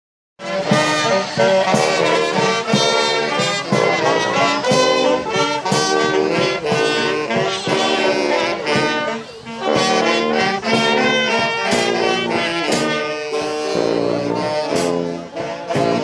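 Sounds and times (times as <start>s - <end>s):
bass drum steady beat: 0.4s - 13.1s
marching brass band playing: 0.4s - 16.0s.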